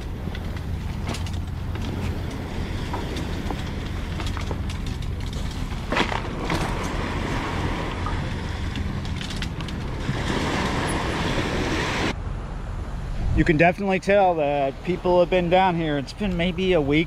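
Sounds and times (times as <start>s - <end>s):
bike tyre and frame noise: 0.0s - 12.2s.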